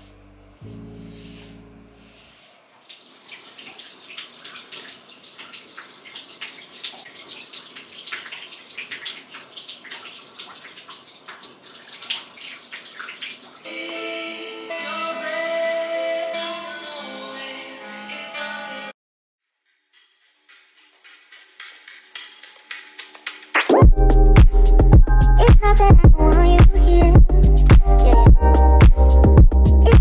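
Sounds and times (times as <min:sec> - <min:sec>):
music: 0:00.0 - 0:02.2, 0:13.7 - 0:18.9, 0:20.8 - 0:30.0.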